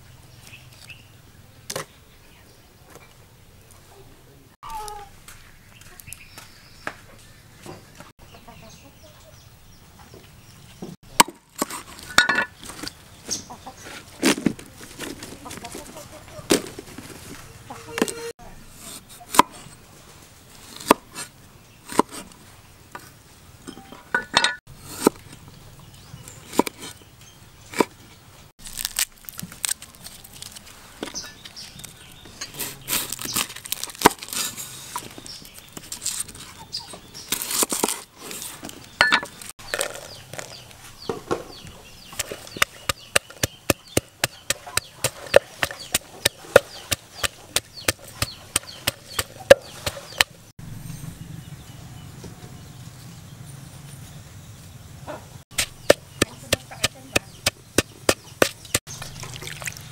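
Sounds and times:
cleaver chopping on wooden board: 55.5 - 58.8.

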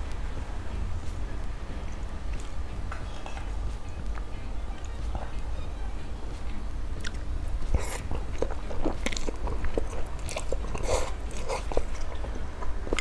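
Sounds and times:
person slurping and chewing noodles: 7.0 - 13.0.

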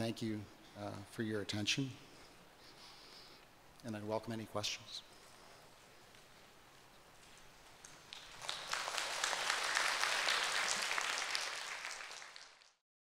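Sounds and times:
audience applauding: 7.7 - 12.8.

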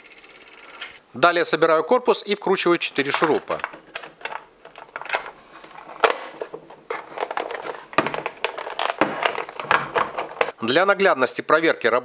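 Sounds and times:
plastic housing clicks and knocks: 3.1 - 5.3, 6.0 - 10.6.

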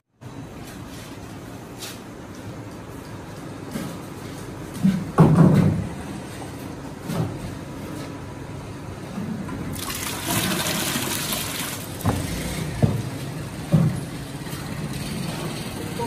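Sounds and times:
water gushing into pot: 9.7 - 12.2.

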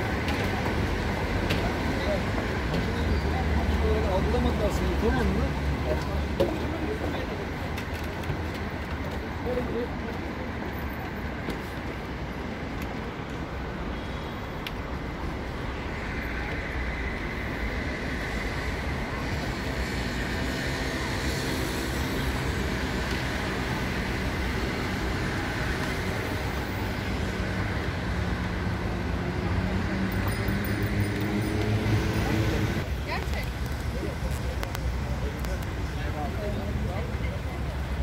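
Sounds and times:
road traffic noise: 0.0 - 38.0
people's voices: 22.2 - 38.0.

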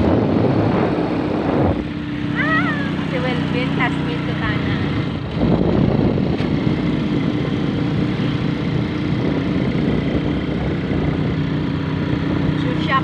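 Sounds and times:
vehicle engine running: 0.0 - 13.0.

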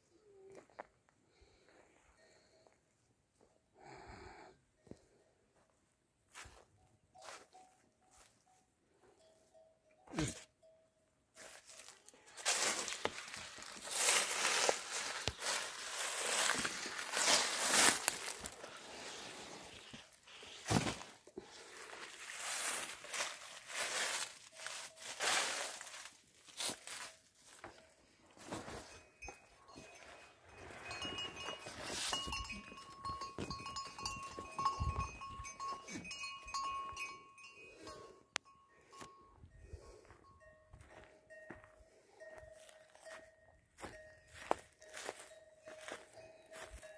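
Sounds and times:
rustling and crunching: 11.4 - 36.6, 43.8 - 46.9
high ringing tones: 26.9 - 46.9.

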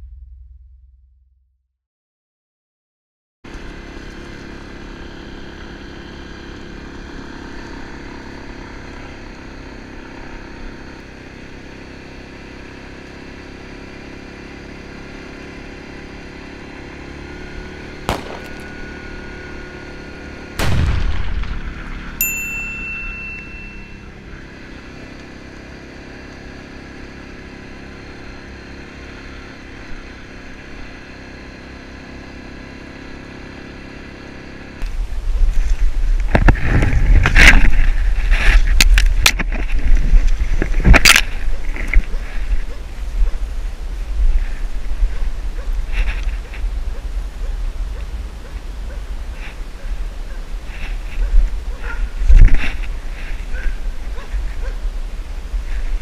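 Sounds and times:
loud thump: 0.0 - 1.5, 20.6 - 22.2
atv engine running: 3.5 - 56.0
tires on gravel road: 3.5 - 56.0
brief high ding: 22.2 - 24.1.

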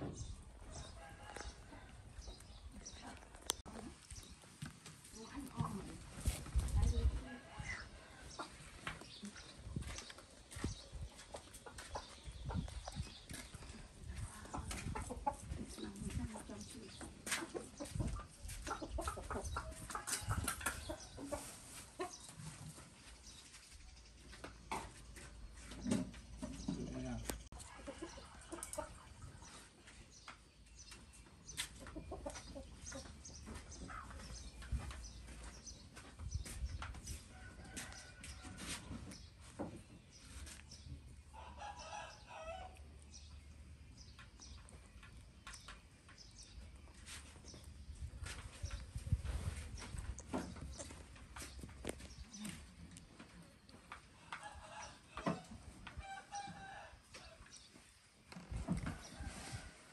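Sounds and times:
chickens clucking: 6.6 - 23.2, 24.2 - 35.5.

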